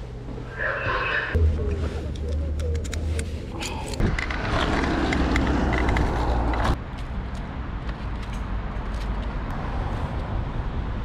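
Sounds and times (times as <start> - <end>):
steady low rumble: 0.0 - 4.8.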